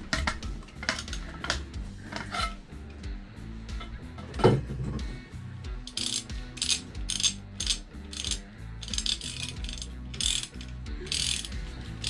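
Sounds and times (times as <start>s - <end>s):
ratchet wrench clicking: 0.2s - 2.5s, 5.8s - 12.0s.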